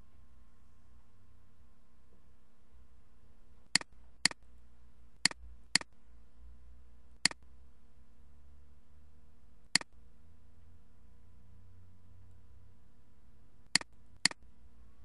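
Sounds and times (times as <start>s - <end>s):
faint low hum: 0.0s - 15.0s
computer mouse clicks: 3.7s - 4.4s, 5.2s - 5.9s, 13.7s - 14.4s.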